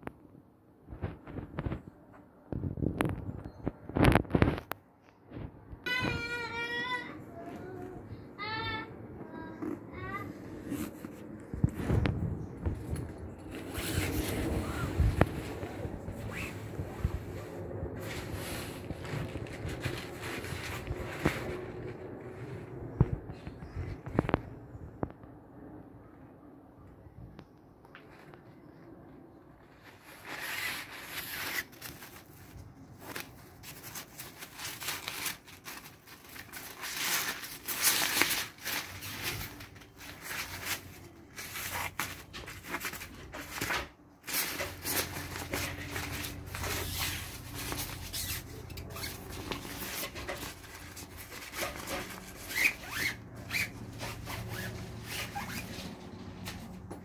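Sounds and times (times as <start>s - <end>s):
nylon bag rustling: 12.8s - 22.8s, 29.6s - 56.7s.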